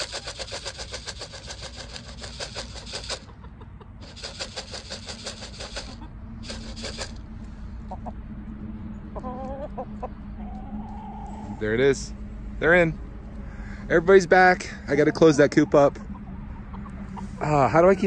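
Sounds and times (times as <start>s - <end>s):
corn rattling in plastic canister: 0.0s - 3.2s, 4.0s - 7.2s
hen clucking: 0.0s - 8.4s, 9.0s - 18.0s.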